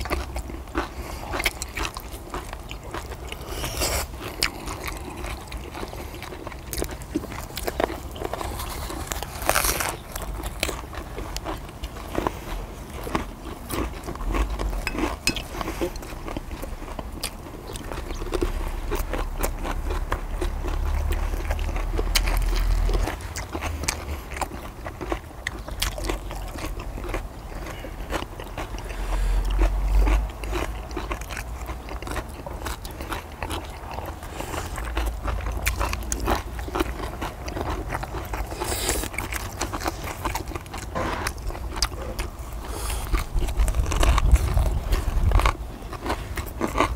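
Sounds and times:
close chewing and biting: 0.0s - 46.9s
mouth clicks and crackles: 0.0s - 46.9s
low rumble: 40.9s - 45.8s.

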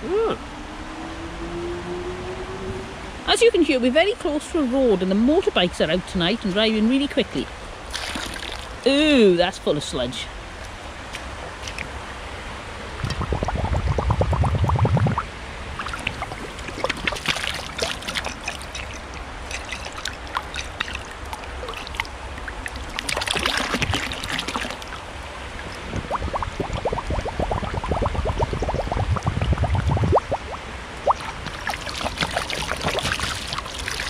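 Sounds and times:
water gurgling in bottle neck: 5.3s - 9.8s, 12.8s - 34.0s
water splashing: 7.4s - 12.1s, 12.8s - 34.0s.

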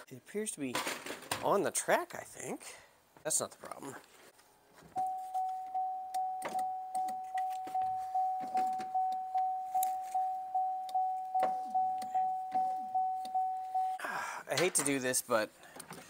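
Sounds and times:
plastic door parts clicking and rustling: 0.7s - 1.6s
car warning chime dinging: 5.0s - 14.0s.

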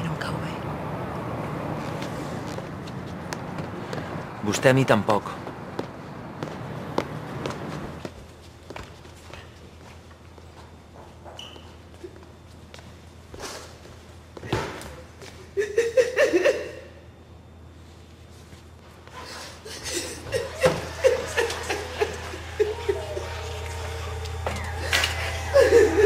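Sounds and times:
low steady hum: 19.6s - 26.0s.

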